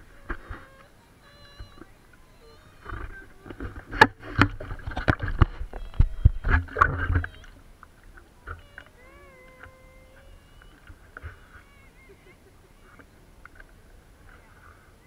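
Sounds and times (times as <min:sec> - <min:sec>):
water splashing and sloshing: 0:00.0 - 0:12.2.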